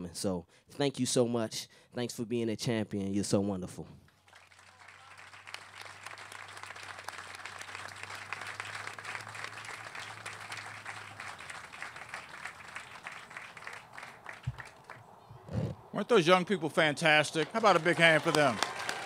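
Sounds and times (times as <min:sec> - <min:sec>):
audience applauding: 0:04.2 - 0:15.1, 0:16.8 - 0:19.0.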